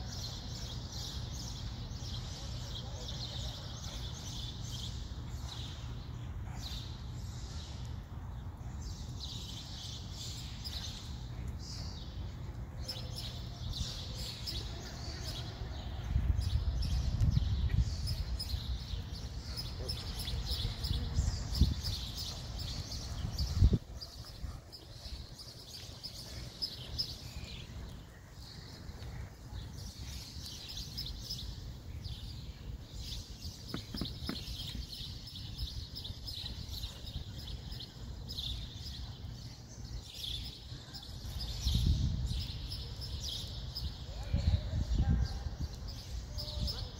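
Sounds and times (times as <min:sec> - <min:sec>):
small birds chirping: 0:00.0 - 0:46.9.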